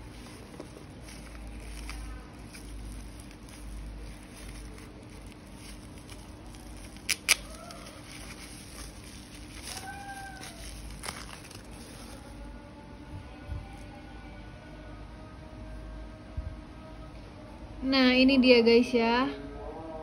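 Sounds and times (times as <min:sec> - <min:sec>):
bubble wrap snaps: 0:00.0 - 0:12.5
bubble wrap crinkling: 0:00.0 - 0:14.1.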